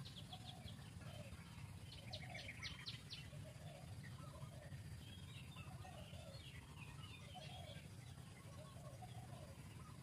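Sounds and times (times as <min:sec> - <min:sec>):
faint bird calls: 0:00.0 - 0:10.0
low steady hum: 0:00.0 - 0:10.0.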